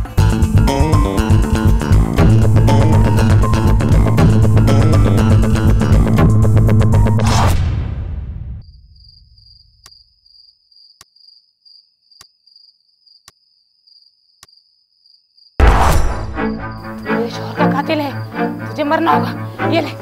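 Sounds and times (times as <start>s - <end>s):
loud film music: 0.0s - 8.6s, 15.6s - 20.0s
sudden loud hit: 7.2s - 9.4s, 15.6s - 17.0s
cricket chirring: 8.6s - 15.6s.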